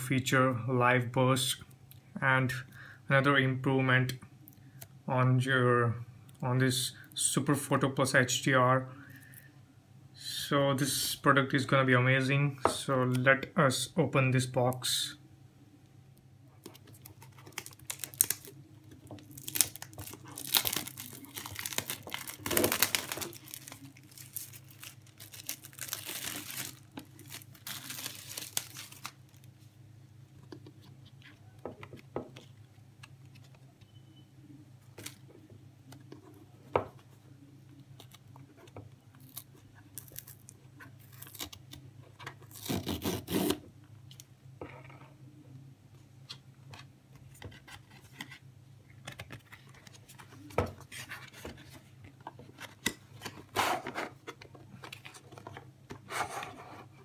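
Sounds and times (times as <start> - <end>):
plastic wrap tearing and crinkling: 17.0 - 18.6, 19.2 - 29.4, 39.2 - 41.8, 42.4 - 43.6.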